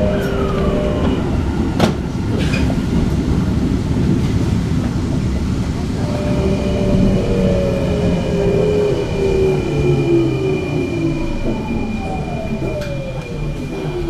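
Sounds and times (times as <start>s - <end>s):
train running rumble: 0.0s - 14.0s
steady high-pitched tone: 6.0s - 14.0s.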